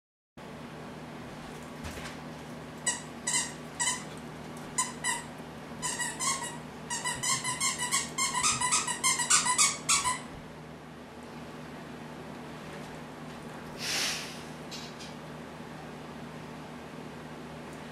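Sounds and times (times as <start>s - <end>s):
squeaky toy squeaking: 2.9s - 4.1s, 4.8s - 10.3s.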